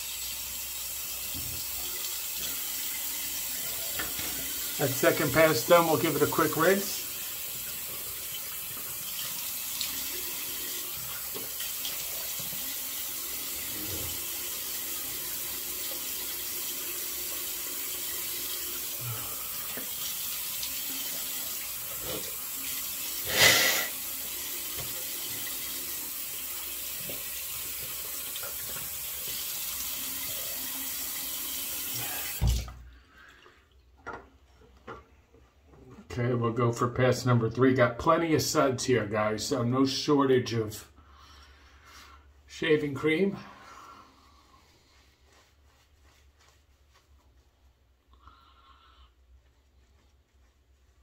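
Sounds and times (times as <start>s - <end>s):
sink tap running: 0.0s - 32.8s.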